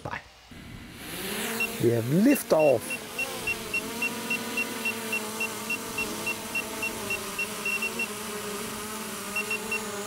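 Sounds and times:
drone propeller hum: 0:00.5 - 0:10.0
short high beeps: 0:02.6 - 0:08.1, 0:09.4 - 0:09.9.

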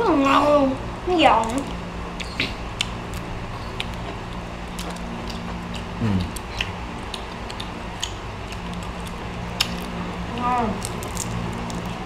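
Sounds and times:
steady low hum: 0:00.0 - 0:12.0
prawn shells cracking: 0:10.8 - 0:12.0.

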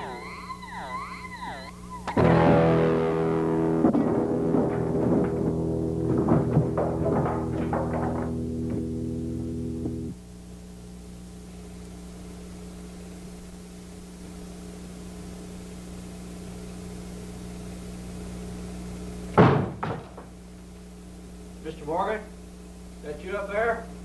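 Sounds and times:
steady low hum: 0:00.0 - 0:24.0
loud bang: 0:02.2 - 0:09.0
weaker knocks: 0:03.7 - 0:09.2.

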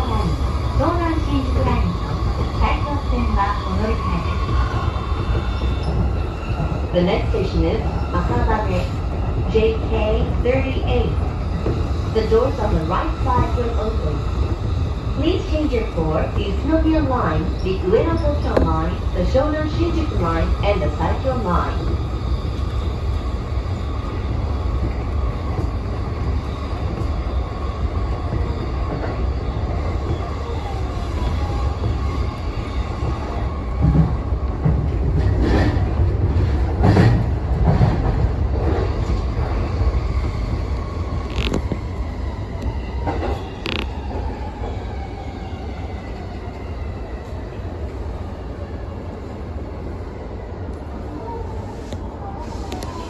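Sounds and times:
train rumble: 0:00.0 - 0:53.0.

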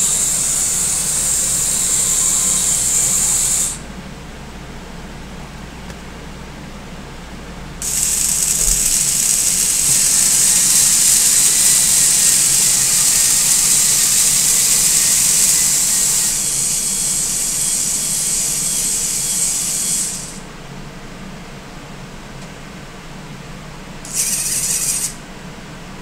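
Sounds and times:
robot arm motors whirring: 0:07.8 - 0:20.4, 0:24.0 - 0:25.2.

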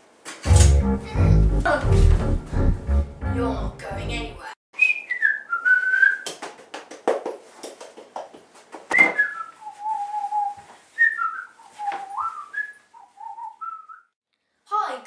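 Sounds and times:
person whistling a slow tune: 0:04.8 - 0:06.2, 0:09.0 - 0:14.1.

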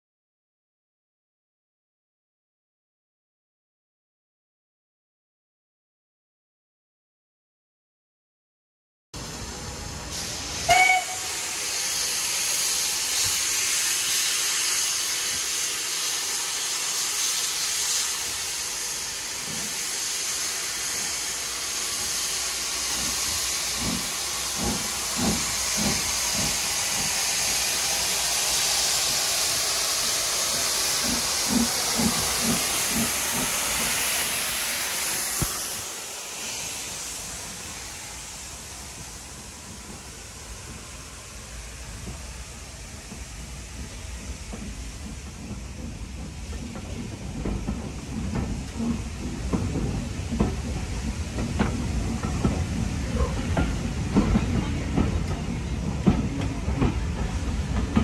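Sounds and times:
hiss of escaping steam: 0:09.2 - 0:58.0
low locomotive exhaust beats: 0:09.2 - 0:58.0
steam locomotive whistle: 0:10.1 - 0:11.8.

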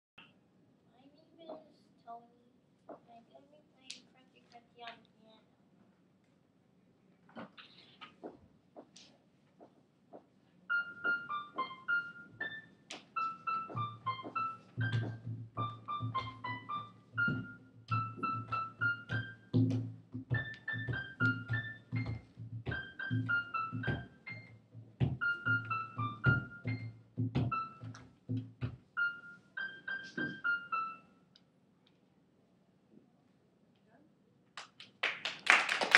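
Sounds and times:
electronic keyboard melody: 0:10.7 - 0:31.2.

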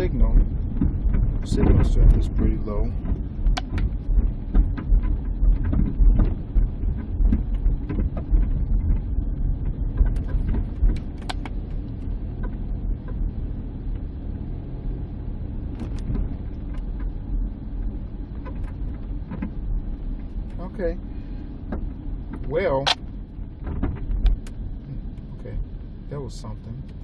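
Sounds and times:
suspension knocks and clicks: 0:00.0 - 0:25.8
van road rumble: 0:00.0 - 0:27.0.

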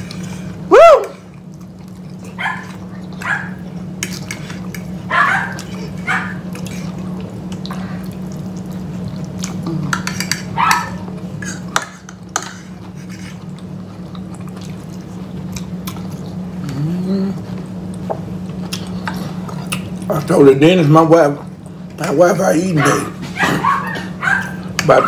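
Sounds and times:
steady low hum: 0:00.0 - 0:25.0
cutlery scraping on plates: 0:04.0 - 0:04.9, 0:09.9 - 0:13.4.

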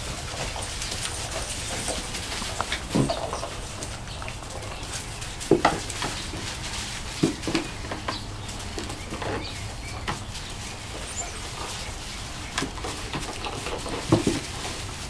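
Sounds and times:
puppies growling and yipping: 0:00.0 - 0:06.8, 0:07.7 - 0:12.5.

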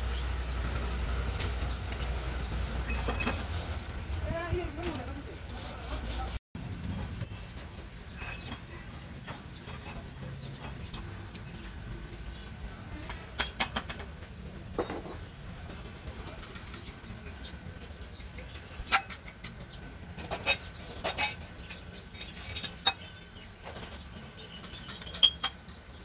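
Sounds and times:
metal tools clinking on metal: 0:18.9 - 0:19.7, 0:20.3 - 0:23.2, 0:24.6 - 0:25.6.

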